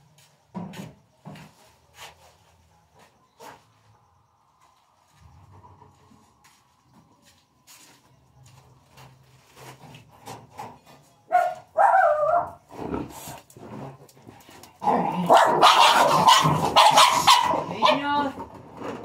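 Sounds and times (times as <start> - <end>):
dog barking: 11.3 - 12.6, 15.1 - 18.2.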